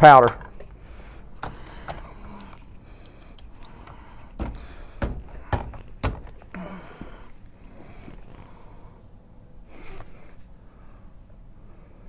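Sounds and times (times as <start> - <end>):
soft rattle: 0.4 - 8.4
metallic clicks and knocks: 1.4 - 6.6.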